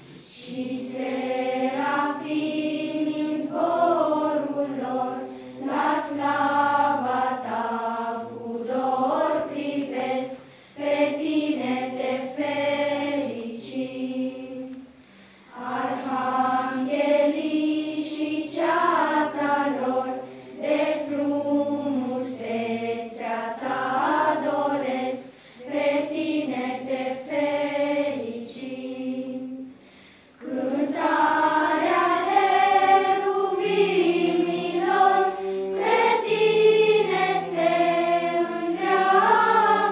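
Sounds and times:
children's choir singing: 0:00.0 - 0:14.9, 0:15.5 - 0:29.8, 0:30.4 - 0:39.9.

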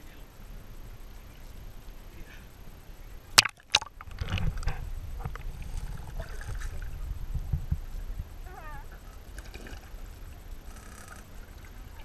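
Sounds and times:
underwater rumble of moving water: 0:00.5 - 0:12.0
faint bubbling ticks: 0:03.4 - 0:08.0.

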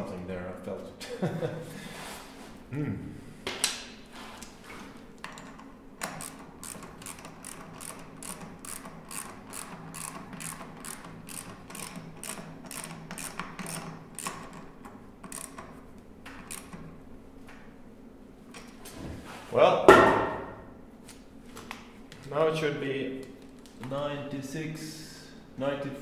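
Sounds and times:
ratchet wrench clicking: 0:06.0 - 0:15.7, 0:16.4 - 0:16.8.

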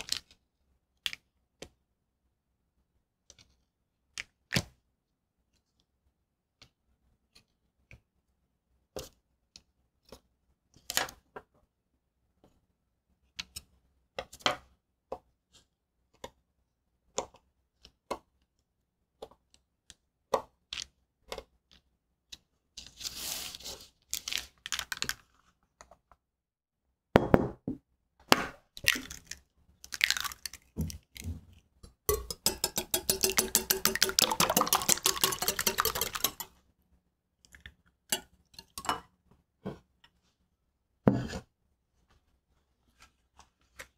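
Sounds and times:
whisk beating eggs in glass bowl: 0:32.1 - 0:36.6.

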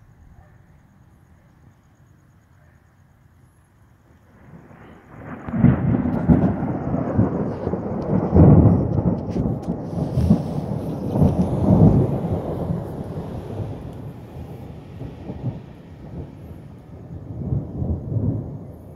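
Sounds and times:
thunder rumbling: 0:04.0 - 0:18.9.

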